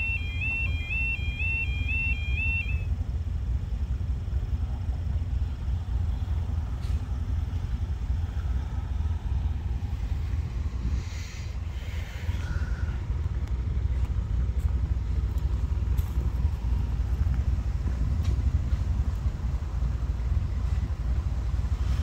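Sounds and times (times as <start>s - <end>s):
level crossing alarm warbling: 0.0s - 2.9s
unsteady low rumble: 0.0s - 22.0s.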